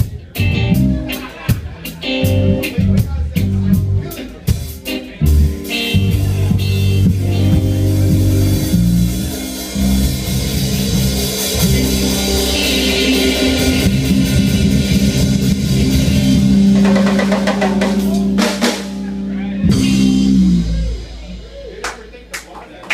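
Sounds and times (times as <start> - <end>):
live rock band playing: 0.0 - 22.3
rapid sharp drum hits: 16.6 - 19.0.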